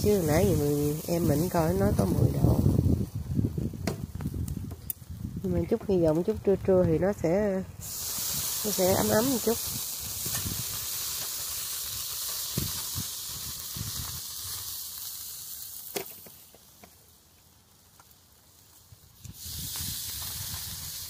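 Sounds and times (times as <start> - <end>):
meat sizzling on a grill: 0.0 - 7.0, 7.8 - 21.0.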